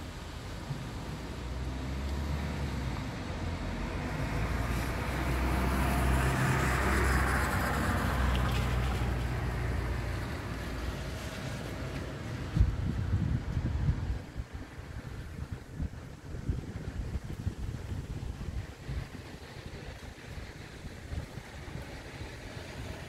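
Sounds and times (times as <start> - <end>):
heavy rain: 0.0 - 23.0
storm wind: 0.0 - 23.0.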